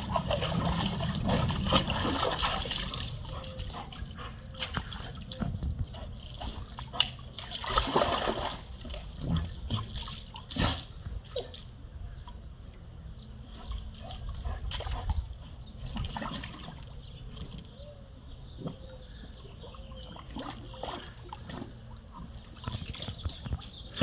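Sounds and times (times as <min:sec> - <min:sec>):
dog splashing in water: 0:00.0 - 0:11.7, 0:20.0 - 0:21.7.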